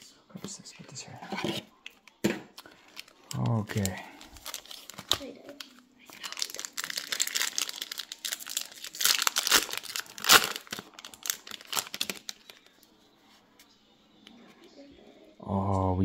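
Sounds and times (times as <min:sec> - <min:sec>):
card pack wrapper crinkling and tearing: 0:02.6 - 0:12.8.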